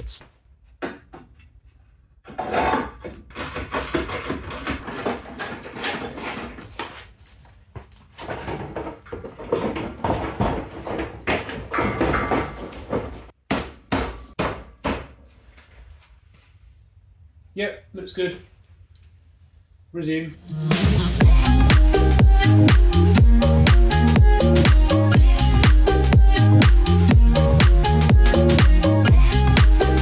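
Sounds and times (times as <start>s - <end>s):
plastic bumper knocking and clattering: 2.3s - 6.7s, 8.2s - 13.3s.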